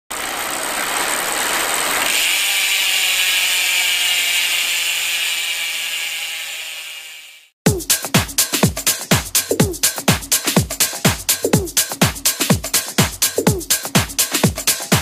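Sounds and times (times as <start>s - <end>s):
hissing ratchet-like whir: 0.1s - 7.5s.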